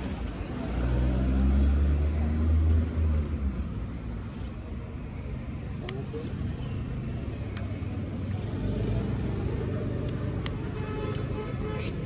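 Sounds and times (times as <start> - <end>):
vehicle engine passing by: 0.0 - 3.8, 7.8 - 10.4.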